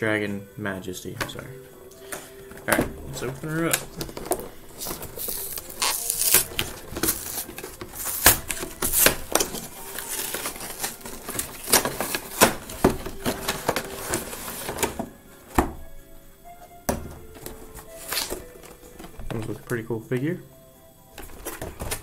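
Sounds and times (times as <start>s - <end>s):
packaging being torn open: 3.7s - 14.5s, 18.0s - 18.6s.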